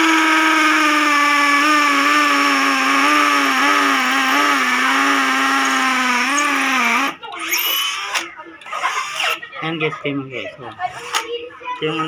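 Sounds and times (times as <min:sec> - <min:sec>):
hammer drill boring into concrete: 0:00.0 - 0:09.4.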